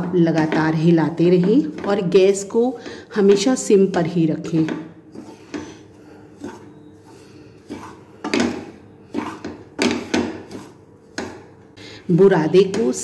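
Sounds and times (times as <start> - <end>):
wooden spatula scraping pan: 0.0 - 13.0.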